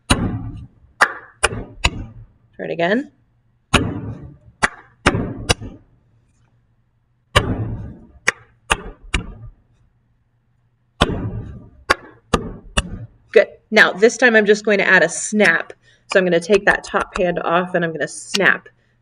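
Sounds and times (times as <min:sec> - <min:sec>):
hand clap: 0:01.0 - 0:01.6, 0:04.6 - 0:05.6
hands patting and slapping a desk: 0:07.4 - 0:09.6.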